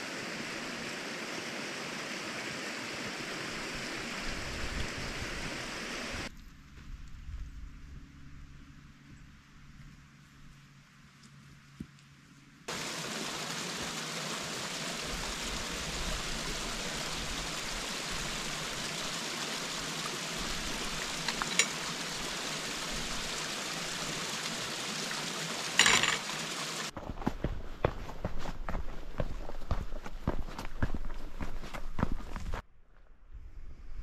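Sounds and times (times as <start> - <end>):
stream rushing over rocks: 0.0 - 6.3, 12.7 - 27.0
footsteps on a path: 26.9 - 32.6.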